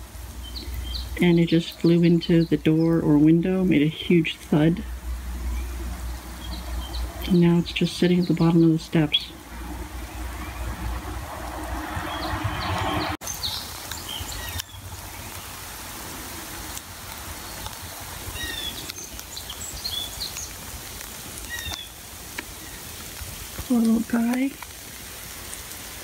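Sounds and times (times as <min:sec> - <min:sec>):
birds chirping faintly: 0:00.0 - 0:25.9
outdoor hiss: 0:00.0 - 0:26.0
low rumble: 0:08.9 - 0:13.2.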